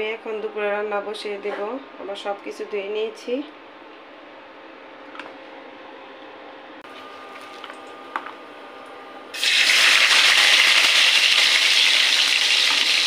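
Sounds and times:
faint background hum: 0.0 - 13.0
onions sizzling in hot oil: 9.4 - 13.0.

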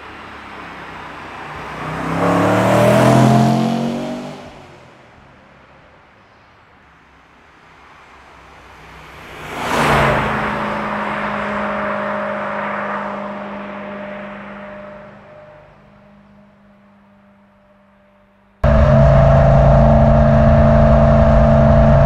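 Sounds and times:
car engine driving past: 1.5 - 4.7, 18.6 - 22.0.

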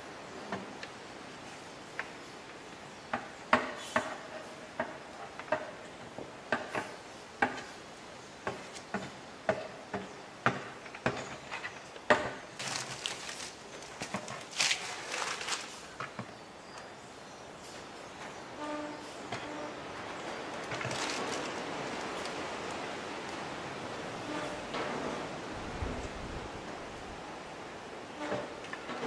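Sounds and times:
paper crinkling and rustling: 12.5 - 16.1, 20.4 - 22.4.

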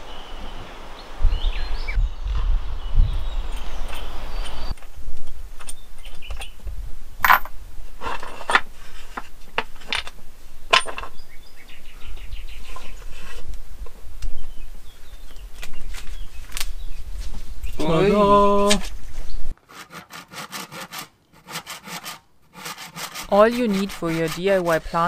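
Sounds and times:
wooden boards clinking on metal screws: 7.2 - 11.2.

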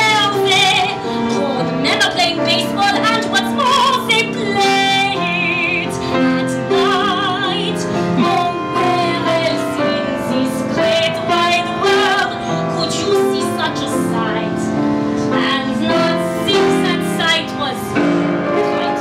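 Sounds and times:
grand piano accompaniment: 0.0 - 19.0
woman singing with vibrato: 0.0 - 19.0.

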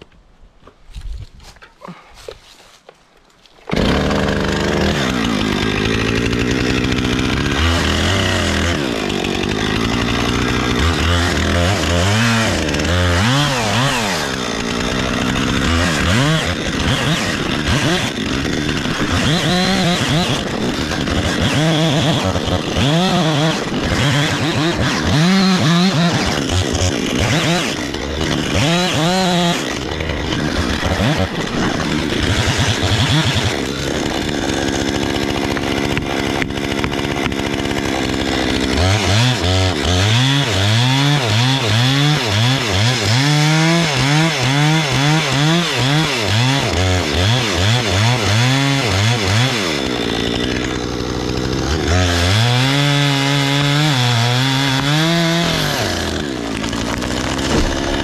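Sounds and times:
chainsaw cutting tree trunk: 3.4 - 58.0.

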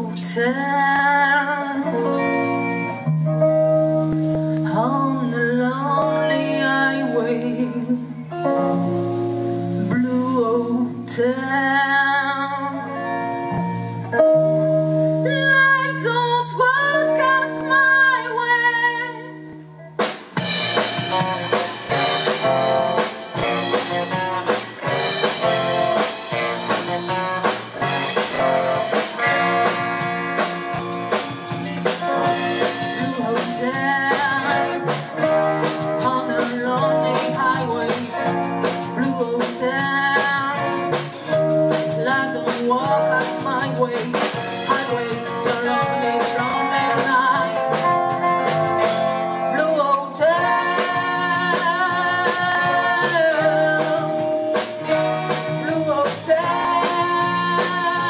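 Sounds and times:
woman singing: 0.0 - 2.6, 4.6 - 9.0, 9.7 - 13.4, 15.2 - 19.6, 32.0 - 48.5, 49.3 - 58.0
bass guitar: 0.0 - 58.0
drums: 0.0 - 58.0
electric guitar: 0.0 - 58.0.

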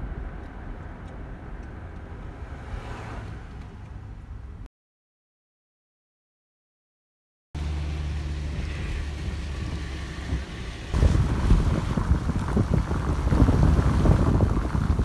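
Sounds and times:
car driving drone: 0.0 - 4.7, 7.6 - 15.0
road rumble: 0.0 - 4.7, 7.6 - 15.0
wind buffeting microphone: 8.4 - 15.0.

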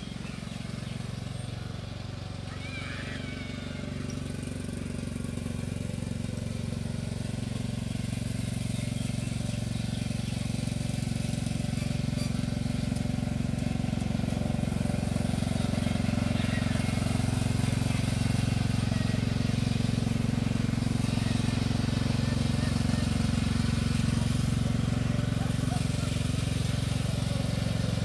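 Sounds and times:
riding mower engine running: 0.0 - 28.0.

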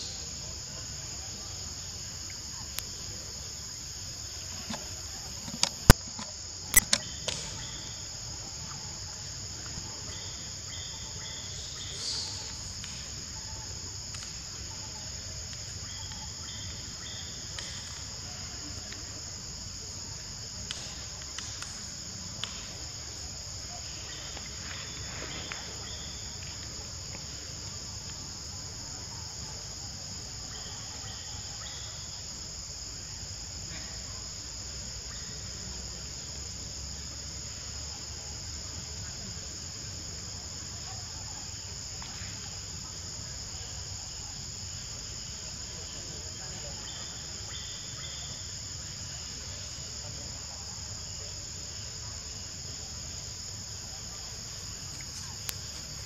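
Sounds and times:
high-pitched insect chorus: 0.0 - 56.0
sharp clicks: 5.5 - 7.5.

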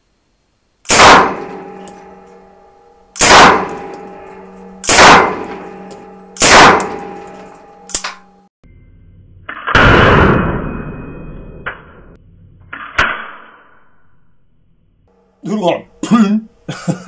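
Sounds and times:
submachine gun shots: 0.9 - 1.7, 3.2 - 3.9, 4.8 - 5.6, 6.4 - 7.0.

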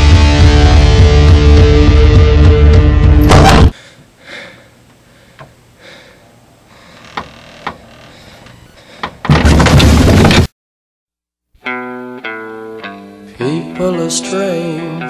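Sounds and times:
loud distorted rock music: 0.0 - 3.7.

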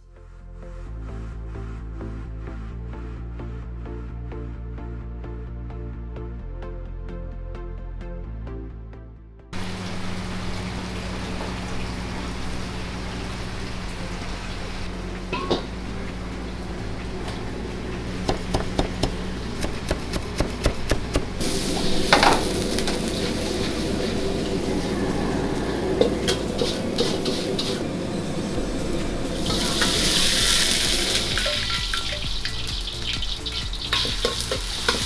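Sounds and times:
food sizzling in hot wok: 9.6 - 16.6, 21.4 - 25.3, 26.2 - 28.2, 28.8 - 35.0
low burner hum: 9.6 - 35.0
metal ladle clinking on wok: 31.4 - 32.6, 33.9 - 35.0.

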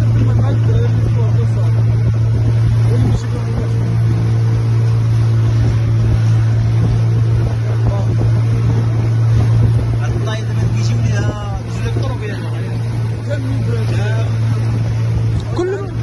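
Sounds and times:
boat motor humming: 0.0 - 16.0
water splashing along hull: 0.0 - 16.0
wind on microphone: 0.0 - 16.0.

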